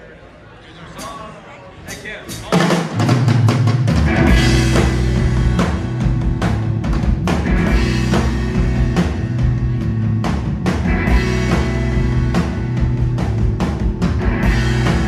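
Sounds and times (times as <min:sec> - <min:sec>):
driving drum beat: 0:01.0 - 0:15.0
electric bass: 0:03.9 - 0:15.0
electric guitar: 0:03.9 - 0:15.0.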